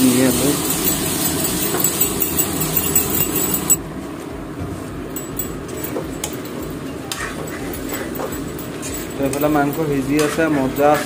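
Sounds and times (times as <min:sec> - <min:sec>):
potatoes sizzling in oil: 0:00.0 - 0:03.0
metal spoon scraping pot: 0:07.0 - 0:11.0.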